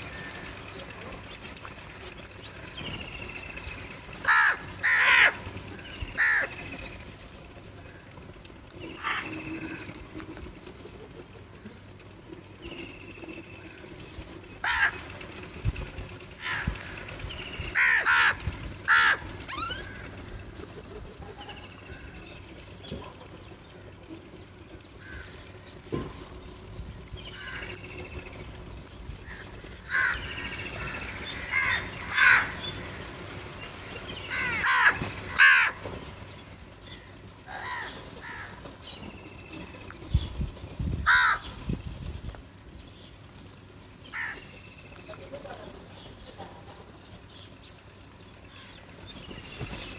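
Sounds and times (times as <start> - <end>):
crows cawing: 4.0 - 6.8, 8.9 - 10.2, 14.6 - 15.3, 16.3 - 17.1, 17.7 - 20.5, 25.0 - 25.6, 27.3 - 27.9, 29.2 - 33.2, 34.2 - 36.2, 36.8 - 39.0, 41.0 - 41.7, 44.0 - 44.5.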